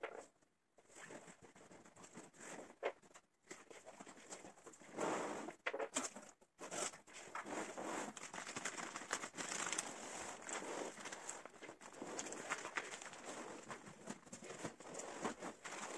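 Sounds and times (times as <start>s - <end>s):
cardboard flap tearing: 8.0s - 11.4s
plastic wrapping crinkling: 8.1s - 15.9s.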